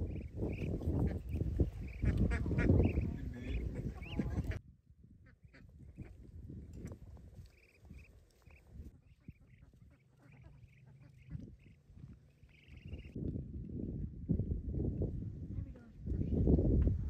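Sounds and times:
ducks quacking: 0.0 - 4.6, 5.2 - 6.2, 6.8 - 13.2.

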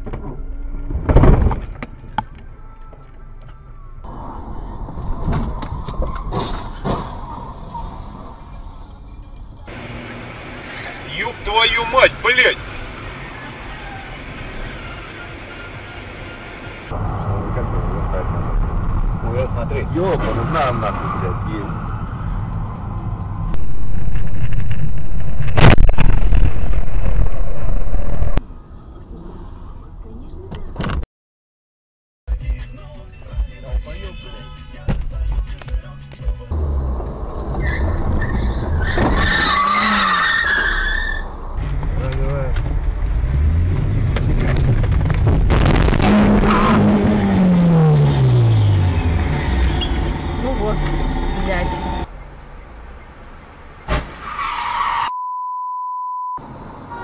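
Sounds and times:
city traffic noise: 0.0 - 25.9, 26.6 - 31.0, 34.0 - 55.1, 56.4 - 57.0
road and wind noise: 0.0 - 31.0, 35.0 - 55.1, 56.4 - 57.0
rushing noise: 9.7 - 19.2, 23.6 - 28.4
car collision impact: 53.9 - 54.3.

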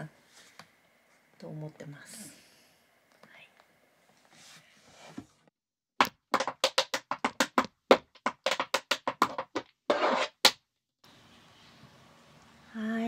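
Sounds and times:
tap shoes on wooden floor: 6.0 - 10.6.

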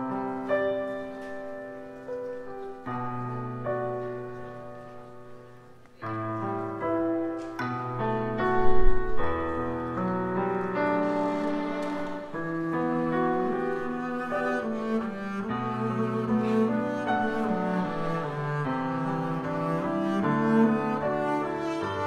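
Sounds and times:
bowed double bass: 10.9 - 22.0.

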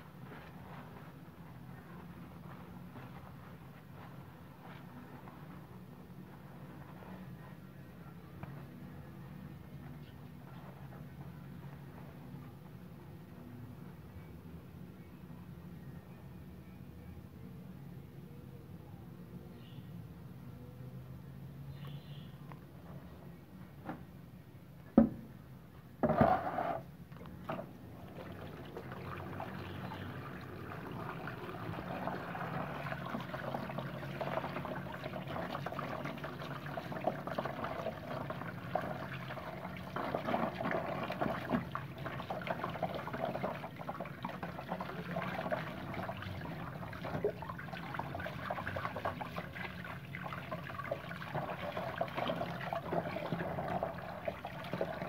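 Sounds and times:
water splashing into a basin: 27.4 - 55.0.

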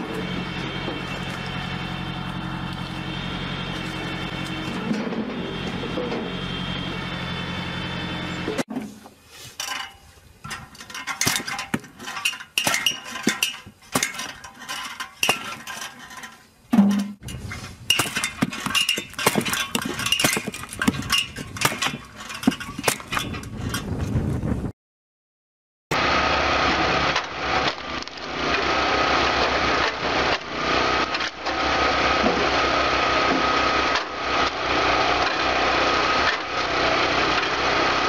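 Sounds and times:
hydraulic log splitter drone: 0.0 - 8.7, 16.8 - 23.2, 25.9 - 38.0
metal blade knocking splitting wood: 10.5 - 16.1, 16.8 - 23.8.

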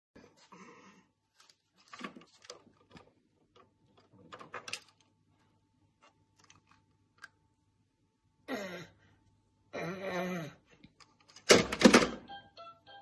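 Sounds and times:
plastic toys clicking and knocking: 2.0 - 5.1, 11.0 - 12.2.

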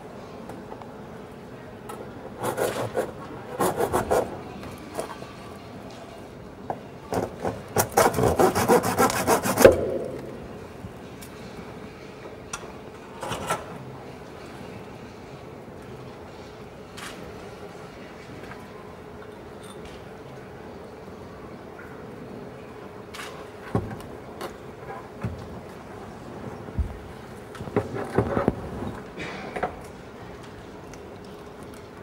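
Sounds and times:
hand tool scraping and sawing: 7.8 - 9.8.

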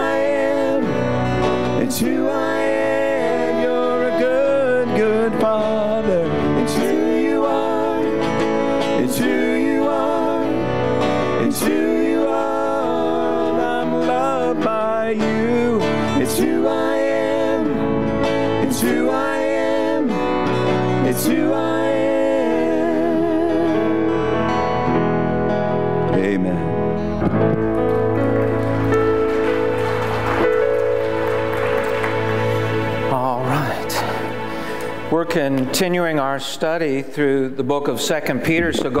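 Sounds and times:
women singing with vibrato: 0.0 - 14.7, 15.4 - 24.4.

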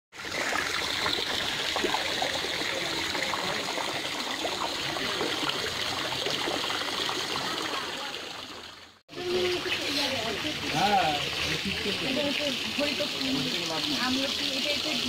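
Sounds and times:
running water rushing: 0.1 - 15.0.

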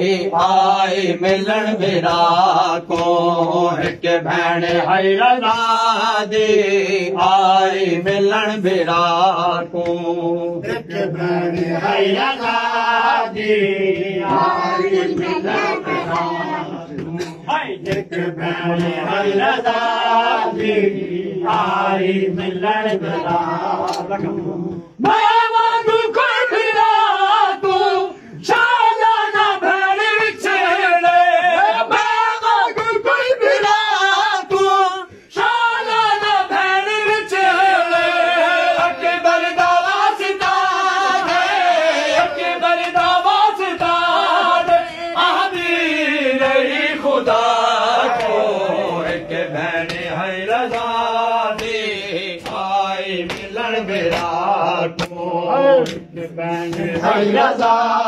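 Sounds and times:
men chanting a lament: 0.0 - 58.0
hand slaps on chests: 0.4 - 10.3, 13.4 - 26.9, 37.9 - 57.2.

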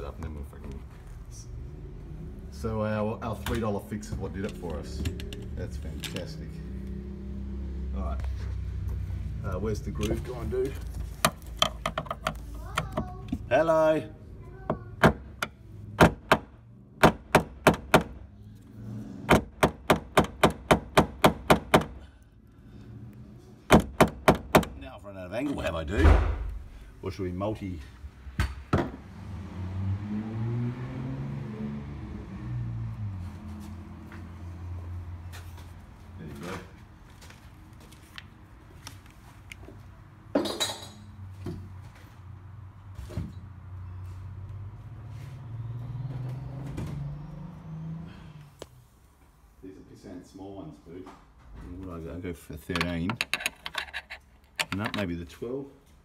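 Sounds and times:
metal tools clinking: 52.7 - 55.1.

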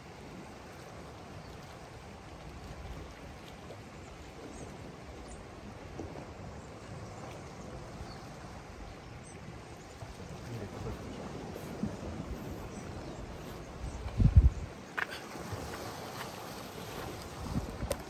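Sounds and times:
water lapping against rocks: 0.0 - 18.0.

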